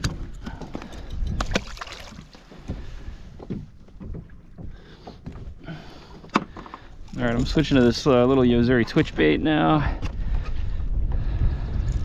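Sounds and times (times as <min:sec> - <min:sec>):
wind rumble on microphone: 0:00.0 - 0:04.8, 0:07.0 - 0:12.0
clicks and rustles of fishing line: 0:00.0 - 0:09.1.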